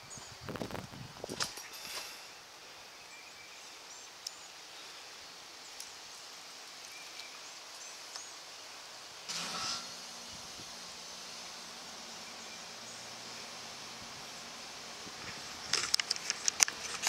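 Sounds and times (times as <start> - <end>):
faint steady hiss: 0.0 - 17.0
small birds chirping: 0.0 - 17.0
soft rustles and clicks: 15.0 - 17.0.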